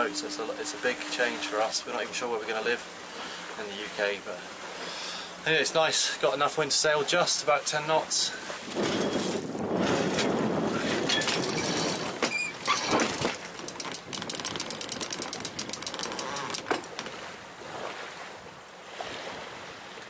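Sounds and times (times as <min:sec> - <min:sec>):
rope squeaking through gear: 0:11.1 - 0:13.3, 0:15.8 - 0:16.7
winch ratcheting clicks: 0:12.6 - 0:17.1.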